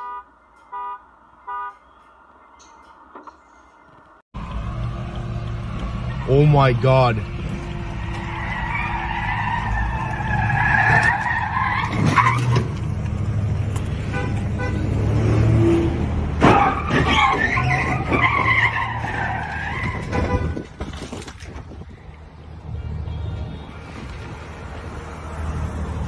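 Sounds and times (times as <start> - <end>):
car engine noise: 0.3 - 26.0
car tyres screeching: 4.0 - 22.0.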